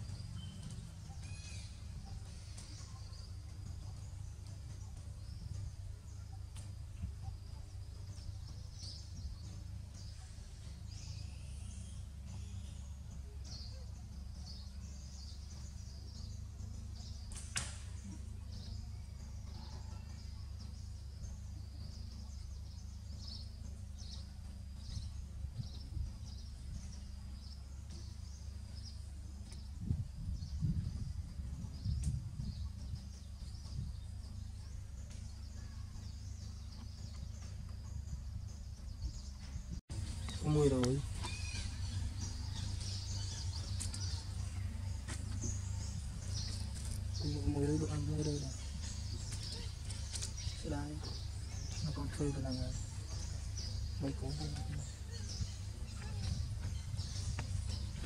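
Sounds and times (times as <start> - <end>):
steady low rumble: 0.0 - 58.0
sharp click: 17.3 - 17.9
low bumps: 20.6 - 58.0.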